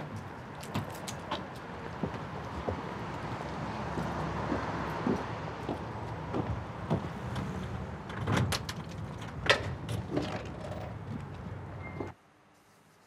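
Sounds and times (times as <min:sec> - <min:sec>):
footsteps on pavement: 0:00.0 - 0:07.7
street traffic rumble: 0:00.0 - 0:13.0.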